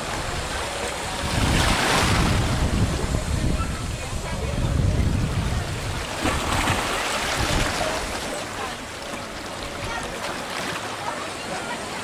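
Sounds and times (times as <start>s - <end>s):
wind buffeting microphone: 0.0s - 8.1s
waves lapping over rocks: 0.0s - 12.0s.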